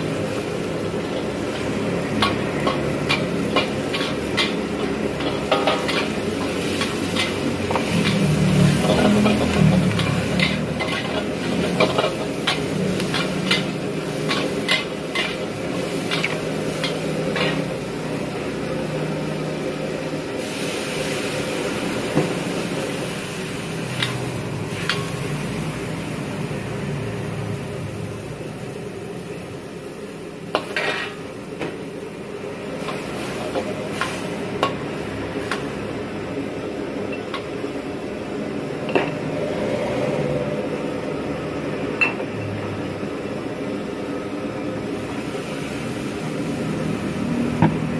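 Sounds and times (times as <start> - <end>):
food sizzling: 0.0 - 47.9
metal ladle clanking against wok: 1.5 - 17.7.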